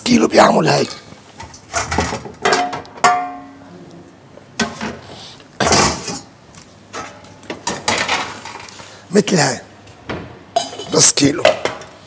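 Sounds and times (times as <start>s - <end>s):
metal pots and lids clanking: 0.8s - 3.6s, 6.9s - 8.7s, 10.5s - 11.9s.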